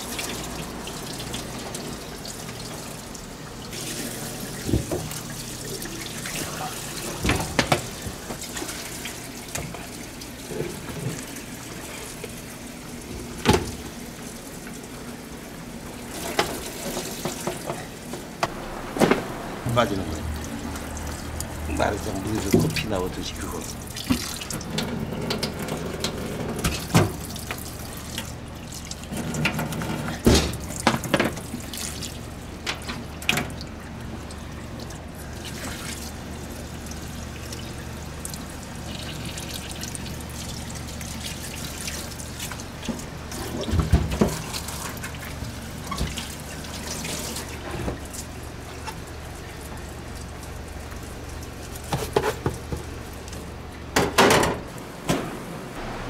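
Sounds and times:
tap water running into sink: 0.0s - 14.9s, 18.4s - 54.6s
steady low hum: 18.4s - 24.5s, 54.8s - 56.0s.

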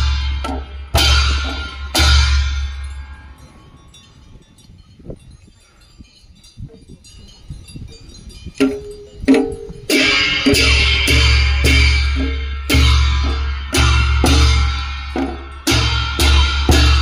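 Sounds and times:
large drum and cymbals struck: 0.0s - 3.4s, 8.6s - 17.0s.

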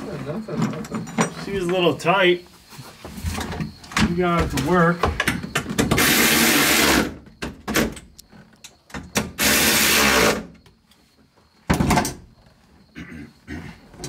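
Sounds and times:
loud noisy rasps: 5.9s - 7.2s, 9.4s - 10.5s.

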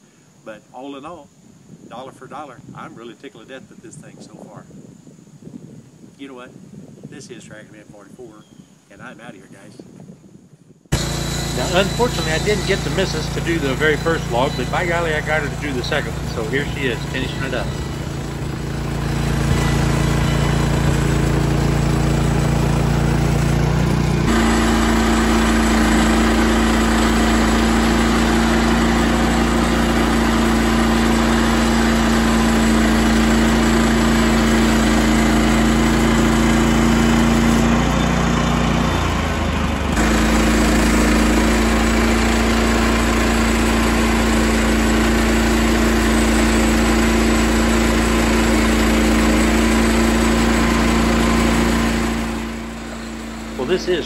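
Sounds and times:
sawmill petrol engine running: 10.9s - 54.0s.

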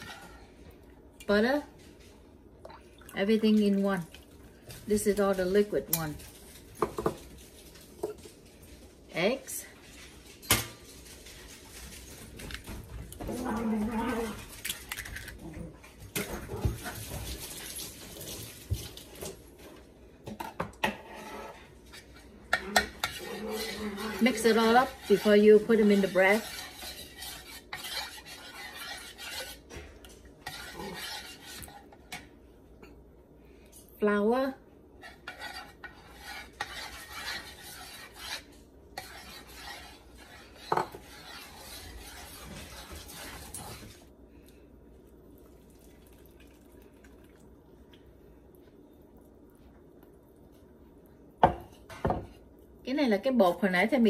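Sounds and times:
metal spoon stirring in ceramic bowl: 20.4s - 32.4s, 35.0s - 44.0s.

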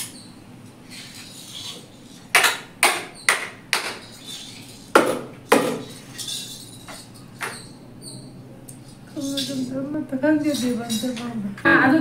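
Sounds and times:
sharp knocks: 2.3s - 4.0s.

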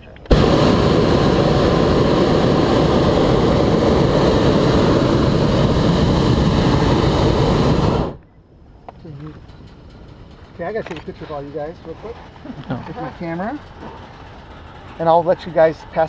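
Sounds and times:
propane burner roaring: 0.2s - 8.2s, 9.3s - 16.0s.

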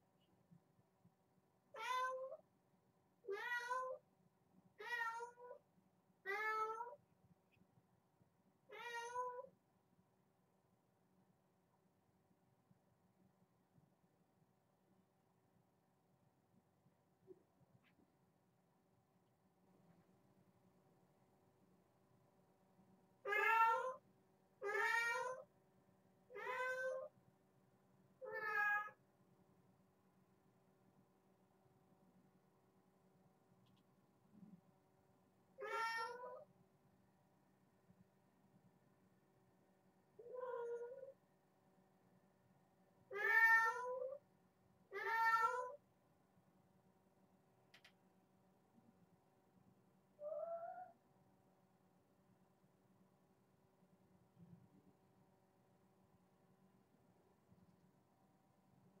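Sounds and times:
kitten meowing: 35.6s - 36.4s, 40.2s - 41.1s, 45.0s - 45.8s.

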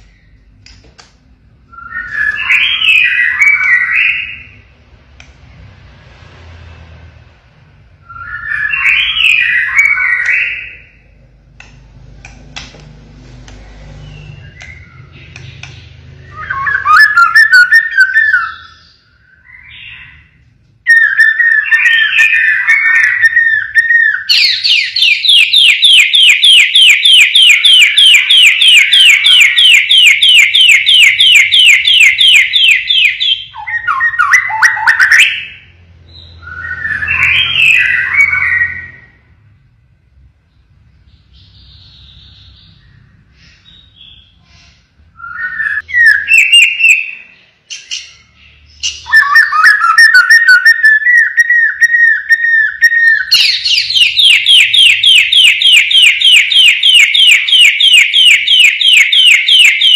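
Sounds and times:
bird singing whistled phrases: 1.7s - 4.6s, 8.0s - 11.0s, 14.1s - 20.2s, 20.9s - 39.2s, 45.2s - 58.7s
bird rapid repeated notes: 20.9s - 35.7s, 45.6s - 59.9s.

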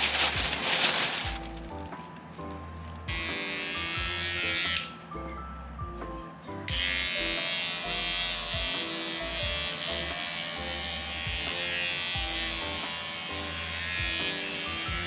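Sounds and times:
background music: 0.0s - 15.0s
electric pet trimmer buzzing: 3.1s - 5.0s, 6.7s - 15.0s.

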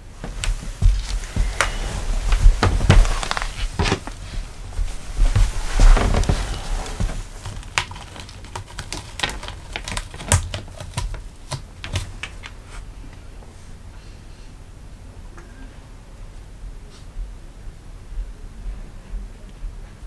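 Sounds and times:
paws and claws clicking on floor: 0.2s - 12.8s.

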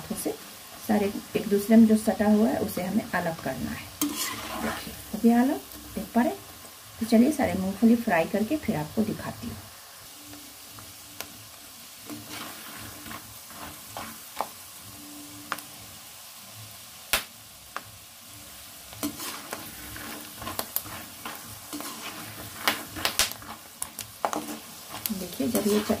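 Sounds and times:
peanuts deep-frying in oil: 0.0s - 26.0s
spatula stirring: 3.8s - 6.1s, 12.0s - 14.6s, 18.9s - 26.0s.

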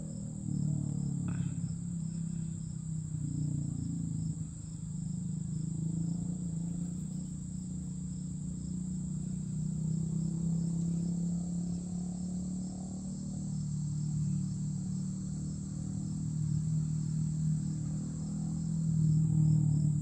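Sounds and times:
insects trilling: 0.0s - 20.0s
low steady hum: 0.0s - 20.0s.

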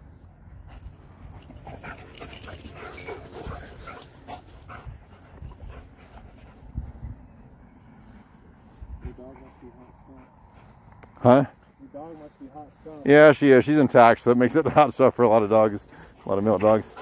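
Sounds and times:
dogs play-wrestling and vocalising: 0.6s - 7.3s, 15.8s - 17.0s.

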